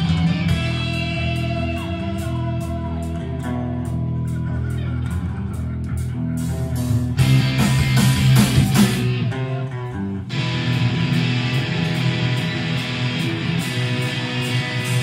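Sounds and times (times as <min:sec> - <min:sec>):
live punk band playing: 0:00.0 - 0:15.0.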